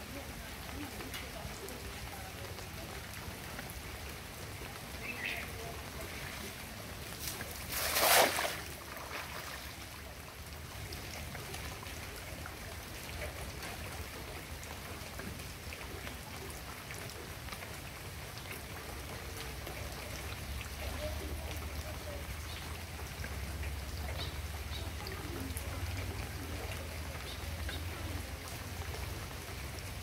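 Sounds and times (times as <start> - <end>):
water washing: 2.8 - 11.8
net splashing into water: 7.2 - 9.8.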